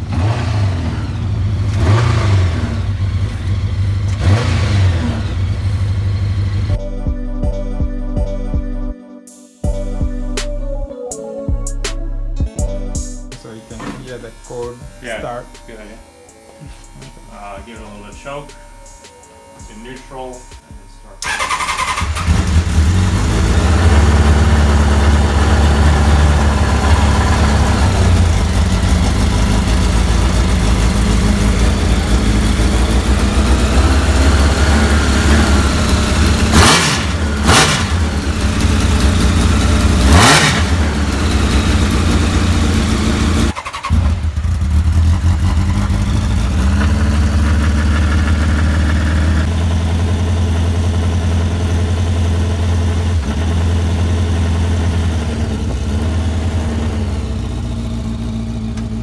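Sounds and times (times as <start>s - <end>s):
motorcycle engine idling and revving: 0.0s - 6.8s, 13.7s - 59.0s.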